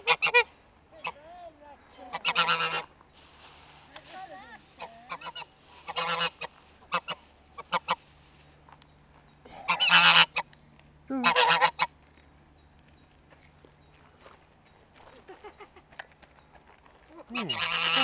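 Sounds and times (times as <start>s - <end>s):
goose honking: 0.0s - 1.2s, 2.0s - 2.9s, 4.8s - 8.0s, 9.6s - 10.5s, 11.1s - 11.9s, 17.2s - 18.0s.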